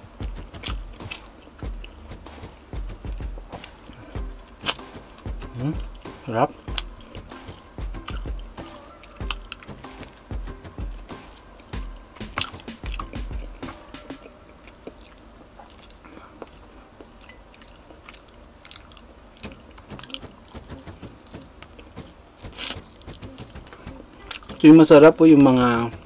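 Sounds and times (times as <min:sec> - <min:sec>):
person chewing chicken: 0:14.6 - 0:20.2.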